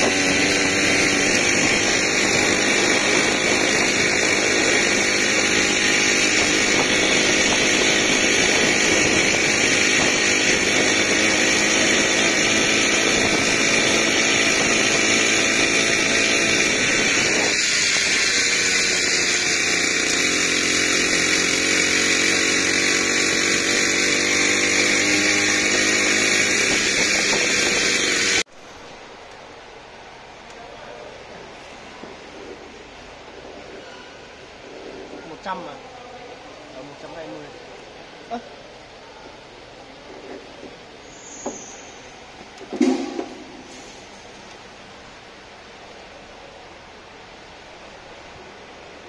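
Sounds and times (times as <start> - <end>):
small engine running: 0.0 - 28.5.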